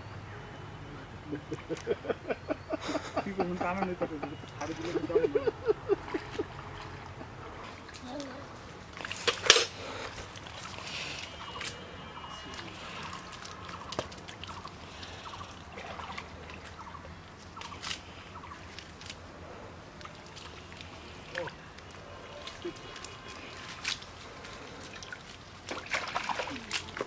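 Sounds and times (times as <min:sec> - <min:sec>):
water sloshing and dripping: 0:04.4 - 0:27.0
small splashes: 0:05.9 - 0:27.0.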